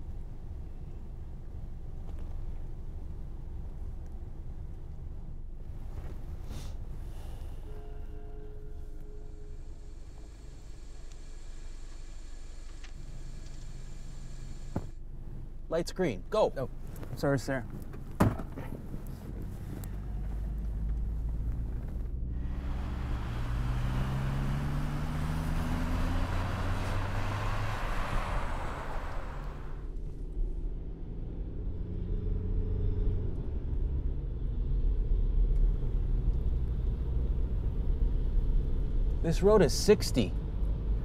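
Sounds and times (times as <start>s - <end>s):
tyre and road noise: 16.7s - 30.1s
car engine accelerating: 18.9s - 29.9s.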